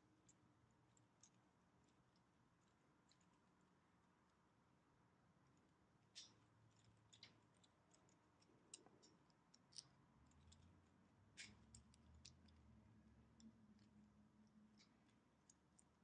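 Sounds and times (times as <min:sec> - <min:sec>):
small plastic clicks: 0:05.5 - 0:12.6, 0:13.3 - 0:16.0.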